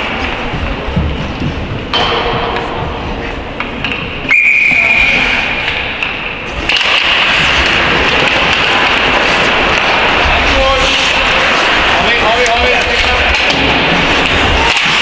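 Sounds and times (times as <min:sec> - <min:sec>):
sports hall noise: 0:00.0 - 0:15.0
referee's whistle blast: 0:04.3 - 0:05.2.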